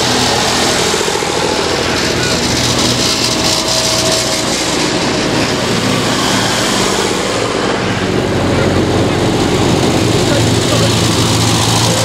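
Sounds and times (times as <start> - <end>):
tractor engines running: 0.0 - 12.0.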